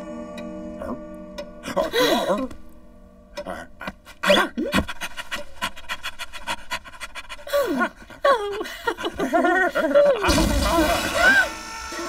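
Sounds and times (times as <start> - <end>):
woman's wordless vocal cries: 1.6 - 2.6, 7.5 - 12.0
cartoon character panting: 4.1 - 9.3.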